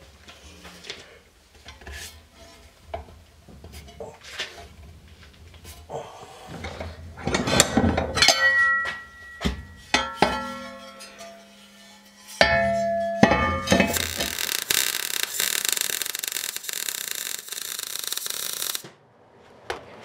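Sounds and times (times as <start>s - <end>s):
metal panels scraping and clinking: 6.6s - 14.5s
sharp metallic clanks: 8.0s - 18.9s.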